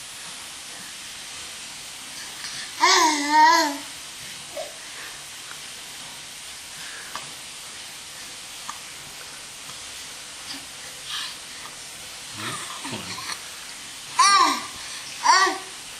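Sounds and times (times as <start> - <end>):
steady hiss: 0.0 - 15.9
baby vocal sound: 2.8 - 3.9, 14.2 - 15.8.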